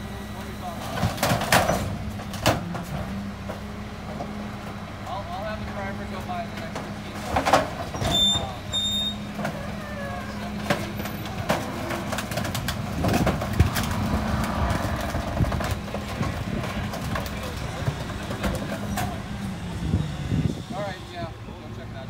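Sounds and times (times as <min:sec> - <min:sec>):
people talking: 0:00.0 - 0:01.4, 0:05.0 - 0:08.8, 0:09.4 - 0:12.0, 0:16.0 - 0:22.0
truck engine idling: 0:00.0 - 0:22.0.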